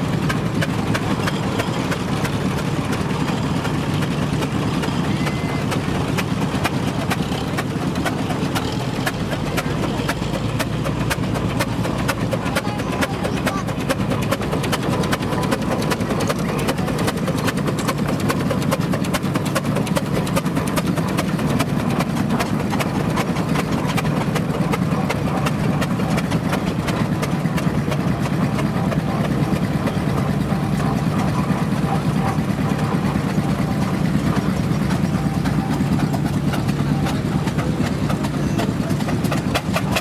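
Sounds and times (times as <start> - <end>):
steam traction engine clatter: 0.0 - 40.0.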